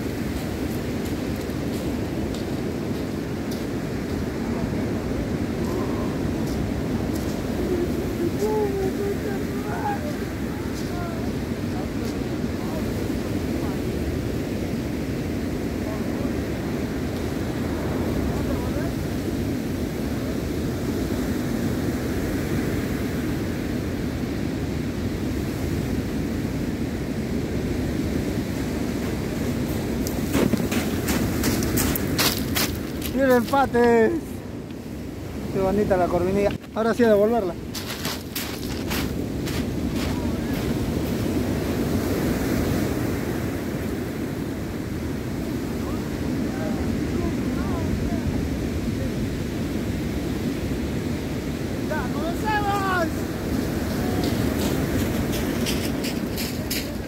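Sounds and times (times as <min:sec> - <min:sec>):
surf washing onto pebble beach: 0:00.0 - 0:57.0
wind on microphone: 0:00.0 - 0:57.0
surf breaking on pebble beach: 0:28.7 - 0:34.3, 0:35.4 - 0:57.0
footsteps crunching on pebbles: 0:30.1 - 0:33.8, 0:37.6 - 0:40.8, 0:53.9 - 0:57.0.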